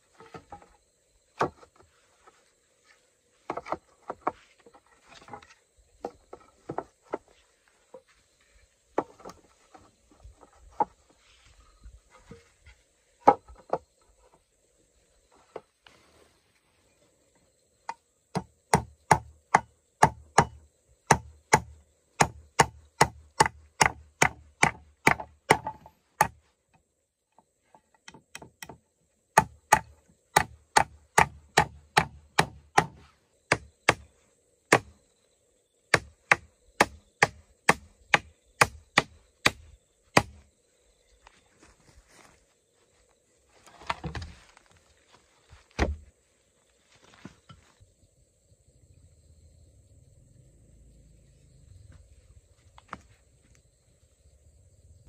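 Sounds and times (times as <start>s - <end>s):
hand tool chopping: 18.3s - 26.4s, 29.4s - 34.1s, 35.9s - 40.4s.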